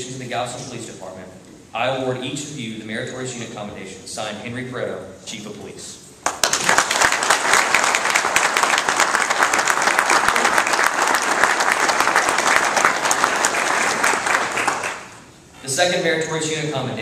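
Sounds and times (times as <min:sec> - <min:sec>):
audience applauding: 0:06.2 - 0:15.2.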